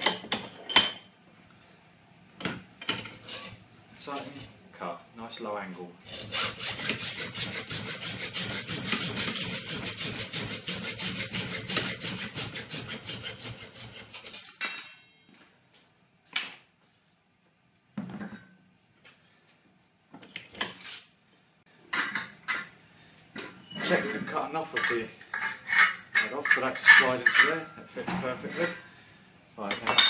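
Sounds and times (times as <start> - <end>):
hacksaw cutting metal: 6.1 - 14.9
short metallic ring: 14.5 - 15.3.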